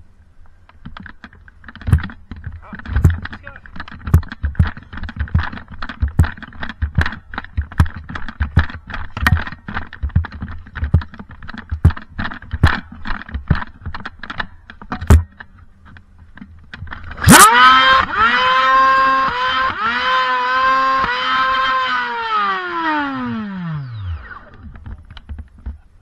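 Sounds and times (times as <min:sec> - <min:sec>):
quick irregular clicks and thumps: 0:00.4 - 0:17.3, 0:24.4 - 0:26.0.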